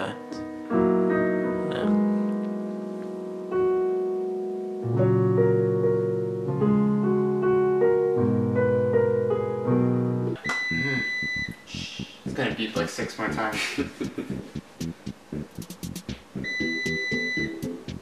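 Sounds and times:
electric piano chords: 0.0s - 18.0s
steady high tone: 10.4s - 12.8s, 16.4s - 17.9s
bass line: 10.4s - 18.0s.

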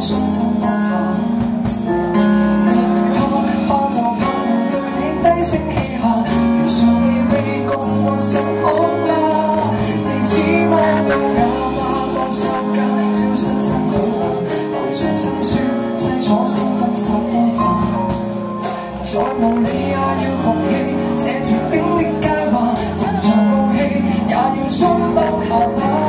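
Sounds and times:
live band playing pop song: 0.0s - 26.0s
man singing into a microphone: 0.0s - 26.0s.

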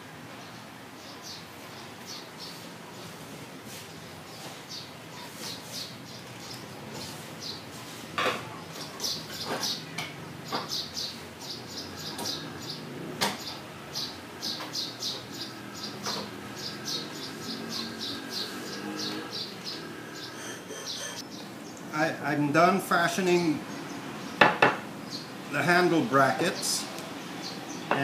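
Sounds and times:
birds chirping: 0.3s - 28.0s
knocks on wooden workbench: 24.4s - 24.8s.

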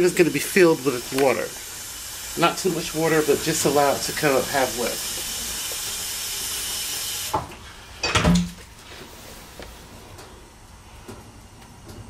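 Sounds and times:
steady hiss: 0.0s - 8.0s
kitchenware clattering: 8.0s - 8.6s.

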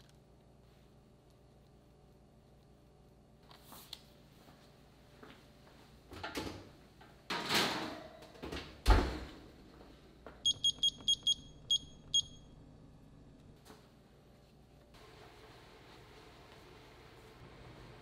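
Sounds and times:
kitchen timer beeps: 10.4s - 12.6s.

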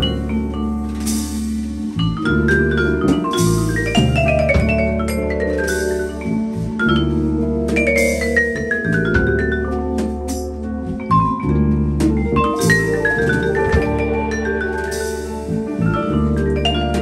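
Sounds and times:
drums: 0.0s - 17.0s
electric bass: 0.0s - 17.0s
guitar: 0.0s - 17.0s
vibraphone runs: 0.0s - 17.0s
cymbal wash: 12.6s - 15.9s.

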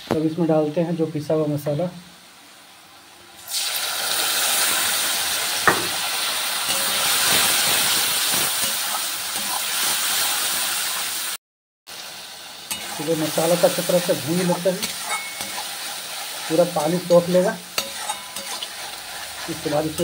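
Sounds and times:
paste sizzling in hot oil: 3.3s - 20.0s
knock: 5.6s - 6.0s.

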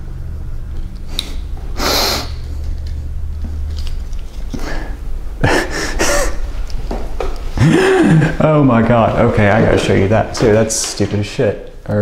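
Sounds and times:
low steady hum: 0.0s - 12.0s
person laughing under breath: 4.5s - 6.6s, 7.6s - 8.4s.

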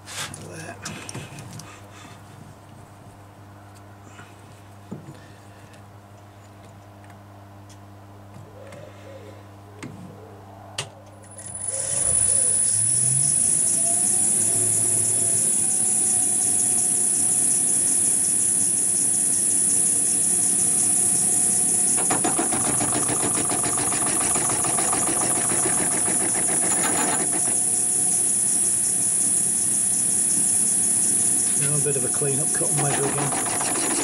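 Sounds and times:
rough rapid cutting noise: 22.0s - 28.1s, 31.6s - 34.0s
metal lathe running: 22.0s - 28.3s, 31.6s - 34.0s.

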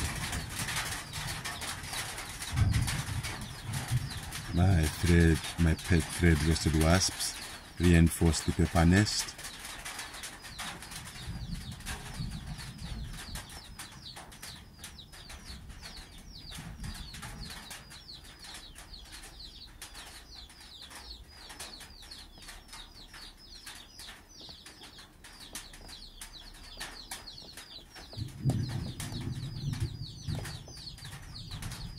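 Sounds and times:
low thunder rumbling: 0.0s - 7.0s, 11.0s - 18.1s, 28.2s - 31.9s
baby chicks peeping: 0.0s - 31.9s.

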